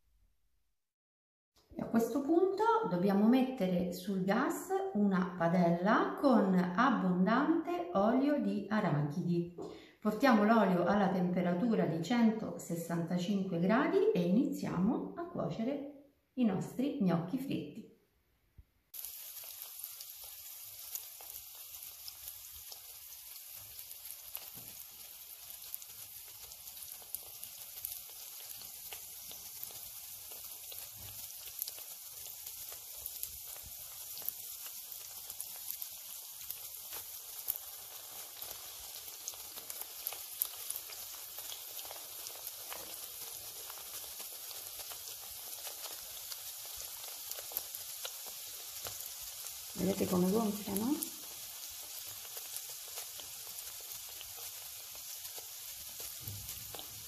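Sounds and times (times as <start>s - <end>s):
dough deep-frying sizzle: 18.9s - 57.0s
small crackles: 18.9s - 57.0s.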